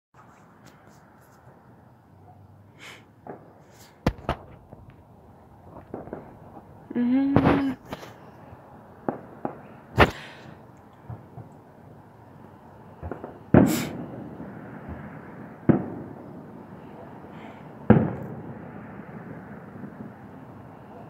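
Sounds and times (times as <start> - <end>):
fireworks bursting with echo: 2.9 - 11.6, 12.9 - 20.5.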